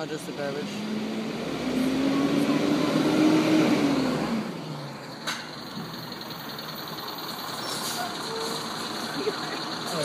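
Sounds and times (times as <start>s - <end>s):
garbage truck engine revving: 0.0s - 10.0s.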